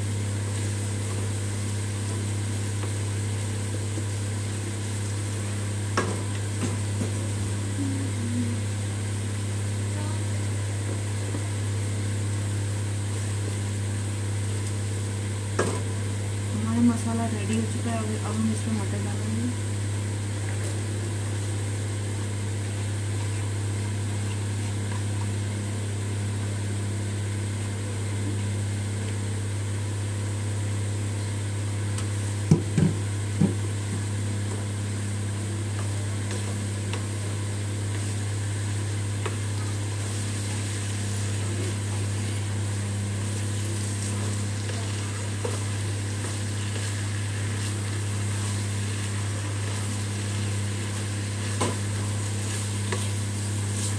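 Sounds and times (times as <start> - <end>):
peas frying in a pan: 0.0 - 7.7, 8.7 - 53.9
steady low hum: 0.0 - 53.9
wooden spatula stirring: 43.9 - 53.9.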